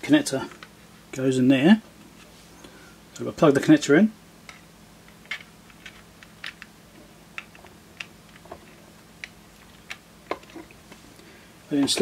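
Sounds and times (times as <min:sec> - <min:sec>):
plastic parts clicking: 0:04.5 - 0:06.7.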